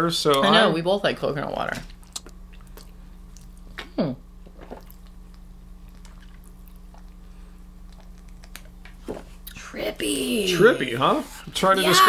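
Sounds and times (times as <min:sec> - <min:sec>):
steady low hum: 0:00.0 - 0:12.0
sips and swallows: 0:02.0 - 0:03.8, 0:04.4 - 0:09.6.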